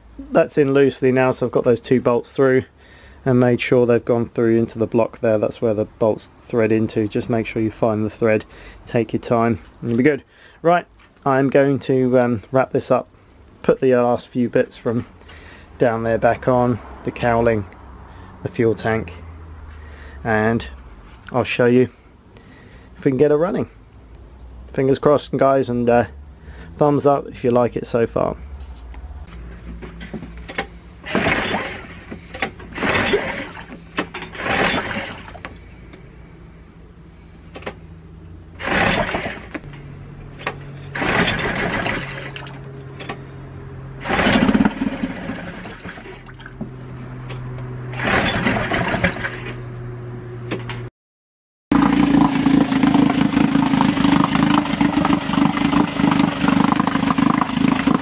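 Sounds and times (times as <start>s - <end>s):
water churning: 31.0s - 32.0s, 32.7s - 35.5s, 38.6s - 39.6s, 40.9s - 42.7s, 44.0s - 46.6s, 47.9s - 49.5s, 51.7s - 58.0s
loud engine bursts: 31.0s - 35.7s, 38.5s - 40.1s, 40.8s - 46.3s, 47.8s - 49.7s, 51.7s - 58.0s
outboard engine running: 31.1s - 33.7s, 34.3s - 35.4s, 38.6s - 39.7s, 40.8s - 42.7s, 44.0s - 46.6s, 47.9s - 49.5s, 51.7s - 58.0s.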